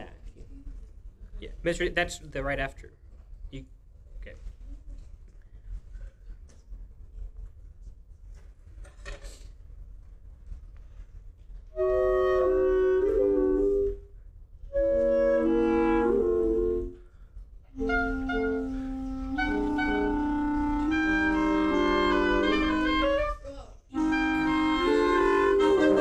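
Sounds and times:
wind ensemble with clarinets: 0:11.7 - 0:14.1, 0:14.7 - 0:17.0, 0:17.7 - 0:26.0.

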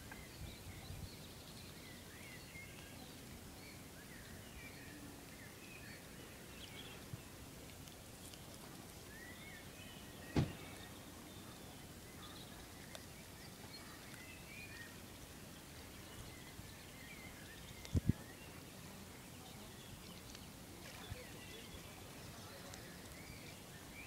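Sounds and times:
small birds chirping: 0:00.0 - 0:24.0
steady low hiss: 0:00.0 - 0:24.0
dull thumps: 0:10.4 - 0:10.7.

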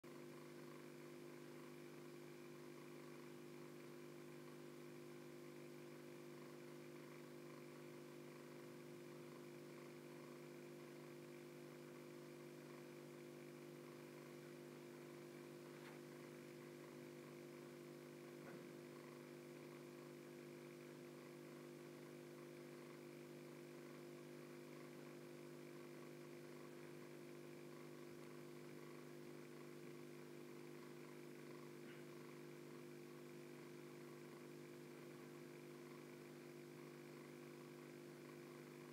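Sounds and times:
aquarium filter motor hum: 0:00.0 - 0:38.9.

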